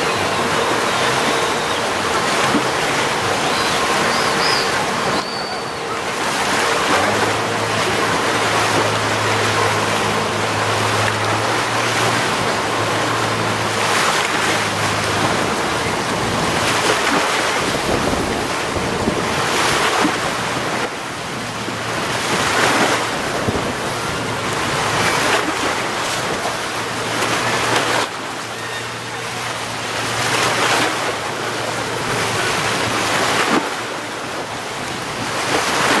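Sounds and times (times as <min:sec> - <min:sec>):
small waves washing on shore: 0:00.0 - 0:36.0
wind buffeting microphone: 0:14.6 - 0:20.8, 0:21.5 - 0:26.6.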